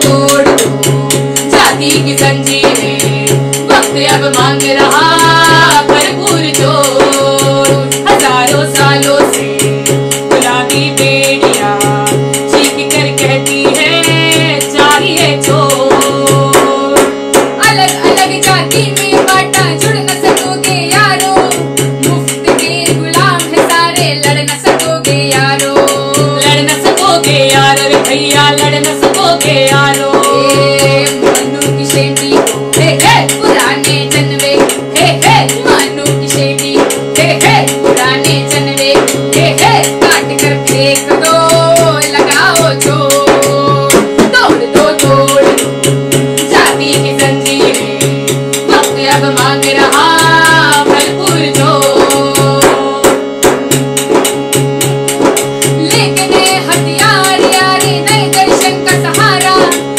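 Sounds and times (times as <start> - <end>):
women singing: 0.0 - 53.4, 55.8 - 59.9
hand drum with jingles: 0.0 - 59.9
keyboard chords: 42.6 - 59.9.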